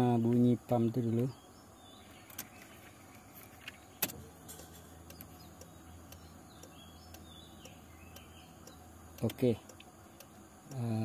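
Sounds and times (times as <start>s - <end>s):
fuel pump humming: 1.4s - 11.0s.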